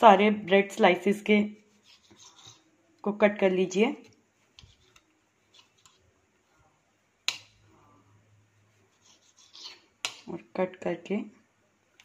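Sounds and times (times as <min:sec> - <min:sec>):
knife cutting bread: 0:01.6 - 0:02.7, 0:08.8 - 0:10.3.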